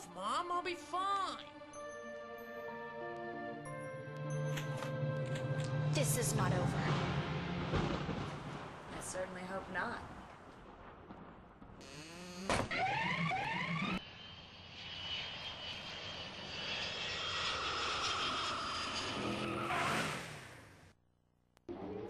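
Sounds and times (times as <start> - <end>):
car driving with high whine: 4.4 - 8.9, 12.6 - 21.0
car engine revving: 21.7 - 22.0.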